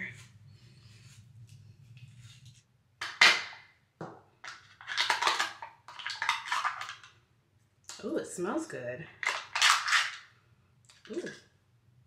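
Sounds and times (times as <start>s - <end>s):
plastic jar cracking: 4.4s - 7.1s, 9.2s - 10.3s.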